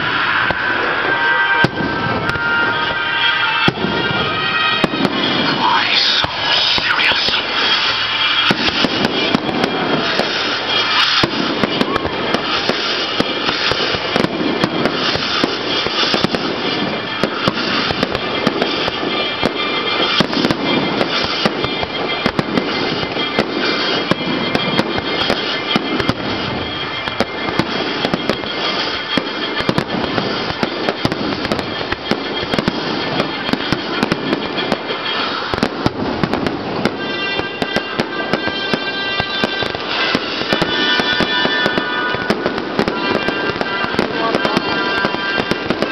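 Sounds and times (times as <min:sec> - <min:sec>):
crackling bangs: 0:00.0 - 0:45.9
firework shells bursting: 0:00.0 - 0:45.9.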